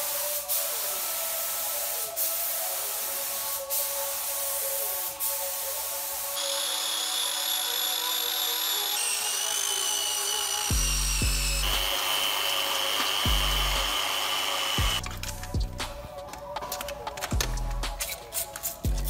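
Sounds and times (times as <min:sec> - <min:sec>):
power tools whining: 0:06.4 - 0:15.0
background music with deep bass: 0:10.6 - 0:19.0.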